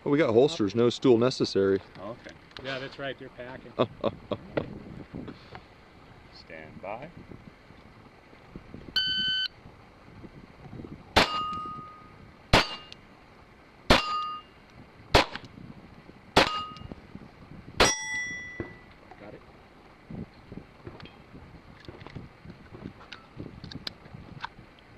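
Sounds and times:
shot timer beep: 0:09.0 - 0:09.5
pistol shots: 0:11.2 - 0:11.5, 0:12.5 - 0:13.0, 0:13.9 - 0:14.3, 0:15.1 - 0:15.5, 0:16.4 - 0:16.7
steel plate ringing clang: 0:11.2 - 0:13.0, 0:13.9 - 0:14.6, 0:16.4 - 0:16.9, 0:17.8 - 0:18.9.

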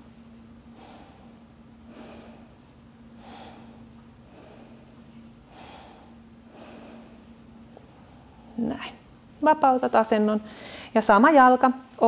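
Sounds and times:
faint steady hum: 0:00.0 - 0:12.0
woman breathing slowly: 0:00.6 - 0:08.6, 0:10.4 - 0:11.0.

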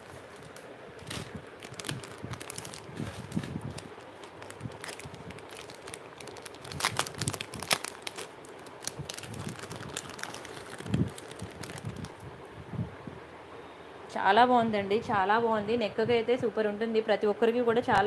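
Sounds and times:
plastic packet crinkling: 0:00.0 - 0:12.2.

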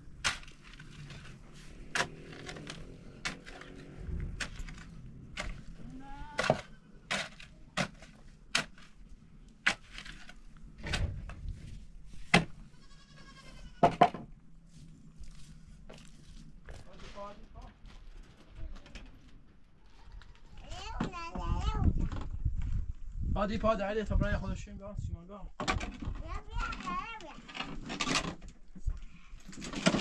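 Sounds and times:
pick striking rocky soil: 0:00.0 - 0:12.6
livestock bleating: 0:12.6 - 0:13.8.

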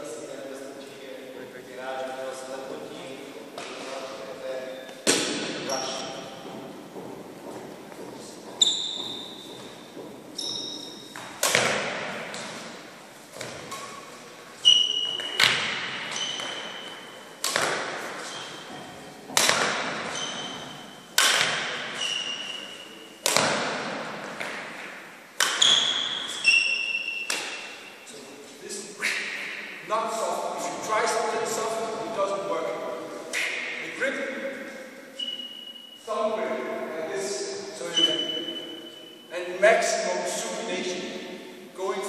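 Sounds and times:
rackets hitting shuttlecock: 0:04.9 - 0:06.3, 0:10.5 - 0:14.1, 0:14.7 - 0:27.9
shoe squeaks: 0:05.6 - 0:06.6, 0:08.2 - 0:11.4, 0:13.7 - 0:17.4, 0:18.2 - 0:19.2, 0:19.9 - 0:21.1, 0:21.7 - 0:23.2, 0:25.5 - 0:28.3, 0:35.1 - 0:36.2, 0:37.8 - 0:39.4.

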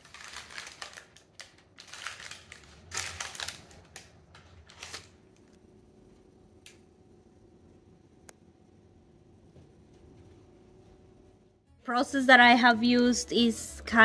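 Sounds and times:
parchment paper crinkling: 0:00.0 - 0:05.4.

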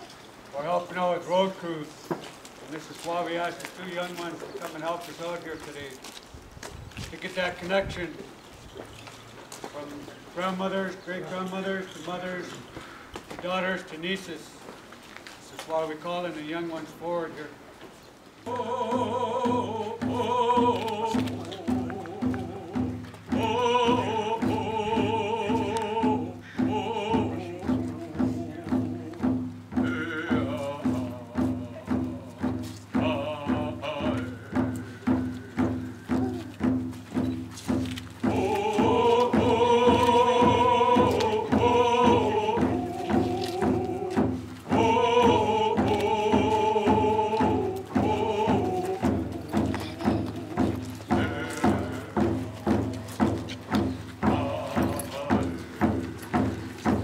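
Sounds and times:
group of voices singing: 0:18.4 - 0:36.8, 0:37.8 - 0:57.0
hand drums beating: 0:18.5 - 0:57.0.

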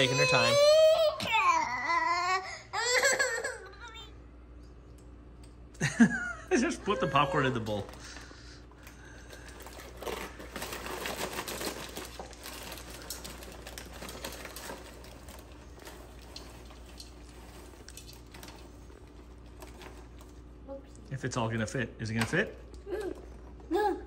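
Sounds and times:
popcorn pouring into a bowl: 0:07.1 - 0:08.3, 0:09.2 - 0:20.3
paper bag crinkling: 0:07.1 - 0:20.5.

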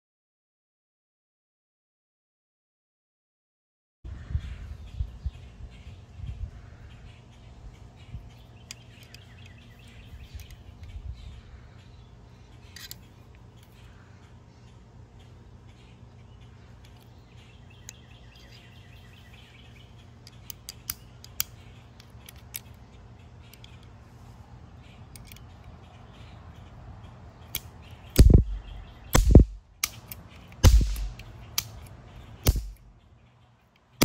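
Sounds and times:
toy cap pistol cracks: 0:20.2 - 0:22.8, 0:27.4 - 0:28.5, 0:29.1 - 0:32.8
cap gun frame snapping shut: 0:29.2 - 0:32.8
cap gun hammer clicks: 0:29.2 - 0:32.8.

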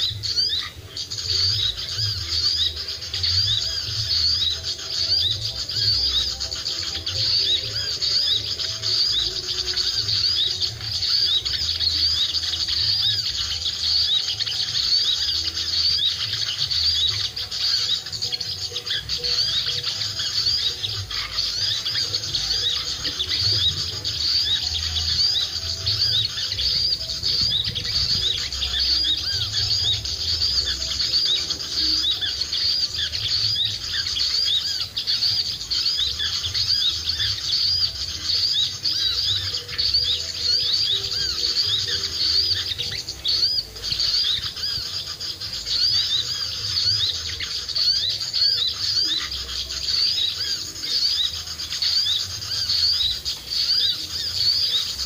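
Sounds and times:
high chirping of small birds: 0:00.0 - 0:55.0
wind rumble on microphone: 0:26.6 - 0:28.8.

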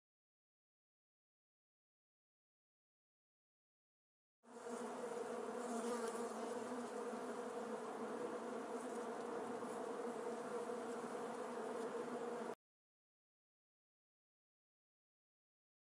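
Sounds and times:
bees buzzing: 0:04.5 - 0:12.6.

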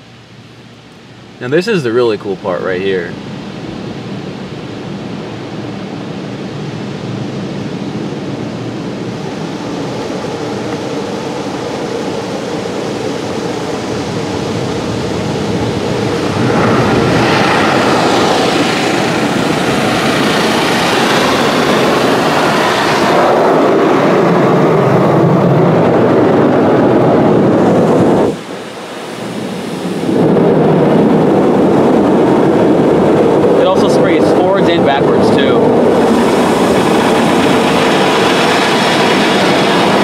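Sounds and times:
car wash water spray hissing: 0:34.2 - 0:40.0.

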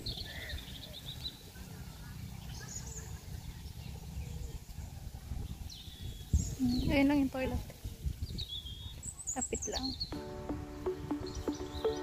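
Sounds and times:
wind rumbling on microphone: 0:02.2 - 0:11.8
high bird chirps: 0:08.3 - 0:12.0.

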